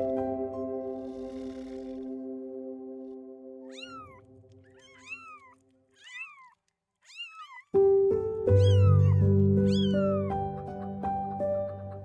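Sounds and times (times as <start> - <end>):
background music: 0.0 - 4.8, 7.8 - 12.0
kitten meowing: 3.6 - 7.7, 8.5 - 10.3.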